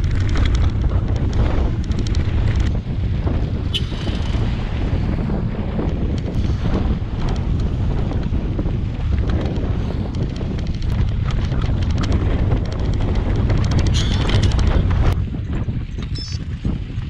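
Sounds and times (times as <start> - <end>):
bike tyres rolling on gravel: 0.0 - 3.6, 4.6 - 17.0
clicks and rattles from bike: 0.0 - 4.6, 5.6 - 17.0
wind noise on microphone: 0.0 - 17.0.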